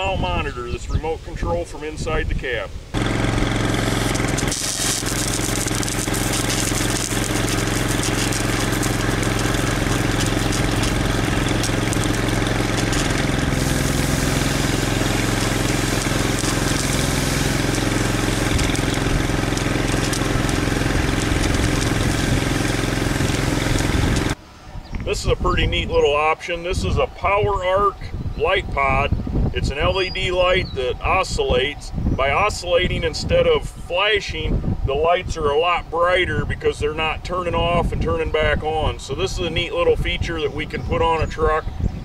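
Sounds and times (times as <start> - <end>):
truck engine running under load: 3.0 - 24.4
water jetting from nozzles: 3.0 - 24.4.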